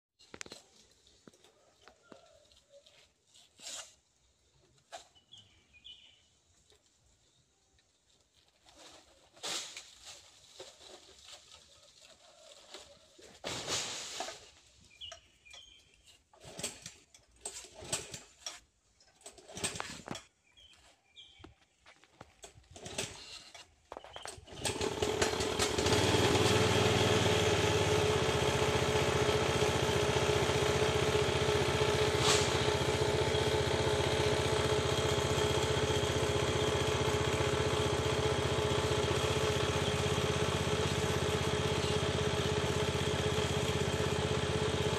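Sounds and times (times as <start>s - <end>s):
small engine running: 24.2s - 44.9s.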